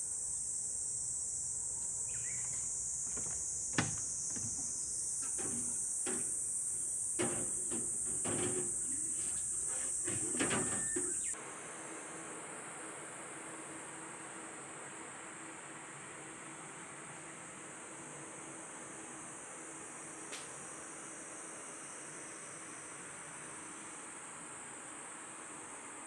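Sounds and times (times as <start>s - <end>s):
high-pitched insect chorus: 0.0s - 11.4s
indoor hiss: 0.0s - 12.5s
plant pots knocking on wooden deck: 3.1s - 4.7s.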